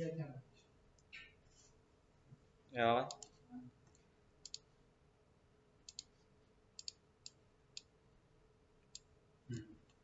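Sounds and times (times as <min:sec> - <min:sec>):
computer mouse clicking: 0:03.0 - 0:04.7, 0:05.8 - 0:06.1, 0:06.8 - 0:07.9.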